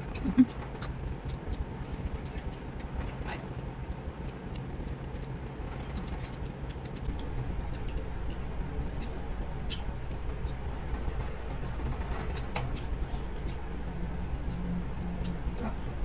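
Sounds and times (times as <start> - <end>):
chewing: 0.0 - 10.6
steady low hum: 0.0 - 16.0.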